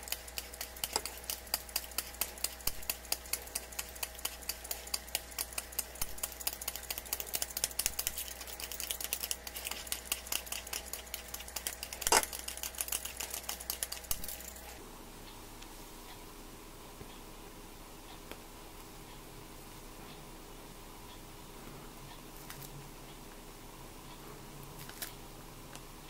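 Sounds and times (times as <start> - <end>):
blade scraping chocolate: 0.0 - 14.8.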